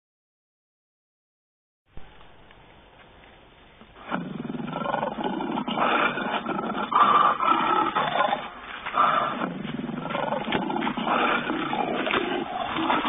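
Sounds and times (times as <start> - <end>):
lion growls through loudspeaker: 4.0 - 13.0.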